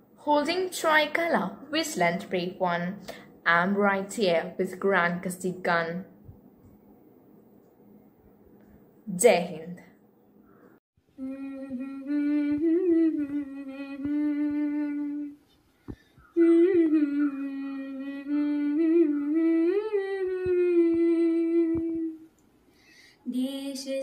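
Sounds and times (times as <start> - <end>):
person humming a slow melody: 11.2 - 15.4, 16.2 - 22.3.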